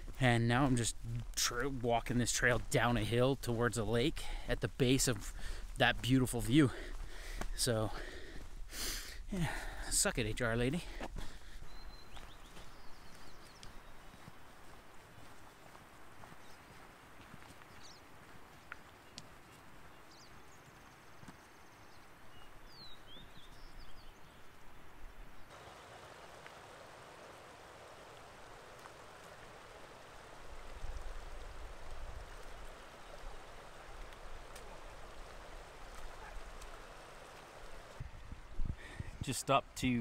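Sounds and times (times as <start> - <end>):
bird chirps: 21.6 - 24.6
mountain creek rushing: 25.5 - 40.0.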